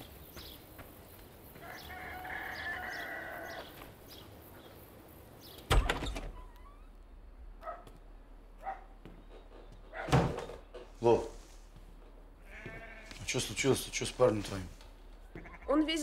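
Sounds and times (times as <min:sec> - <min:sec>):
sheep bleating: 0:01.7 - 0:03.7, 0:12.4 - 0:13.3, 0:15.3 - 0:15.9
door thumping open: 0:05.6 - 0:06.6, 0:09.3 - 0:11.0.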